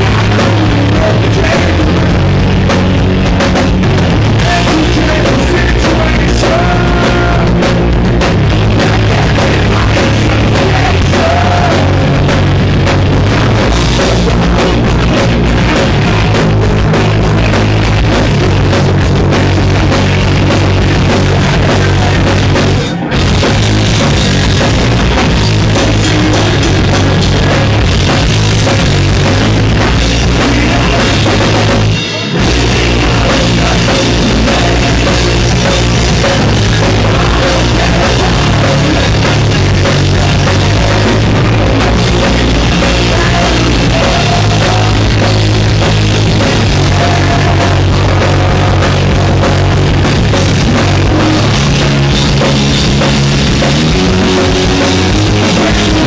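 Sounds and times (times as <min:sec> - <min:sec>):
punk rock band playing: 0:00.0 - 0:56.0.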